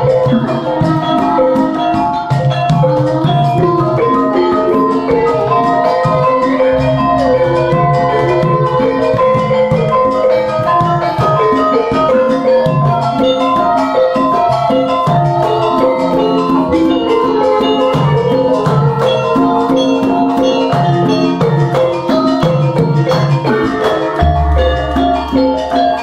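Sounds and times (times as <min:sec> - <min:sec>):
gamelan ensemble playing: 0:00.0 - 0:26.0
deep gong stroke: 0:24.2 - 0:26.0.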